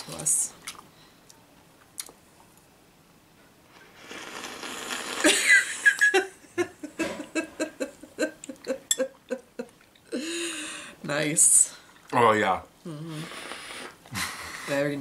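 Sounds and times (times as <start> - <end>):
wet slurping: 3.8 - 5.4
person laughing: 5.2 - 10.6.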